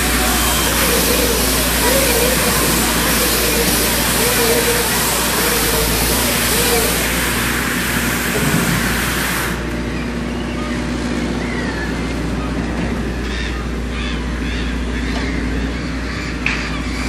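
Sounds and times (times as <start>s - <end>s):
loud hiss: 0.0s - 9.9s
bale wrapping machine hum: 0.0s - 17.0s.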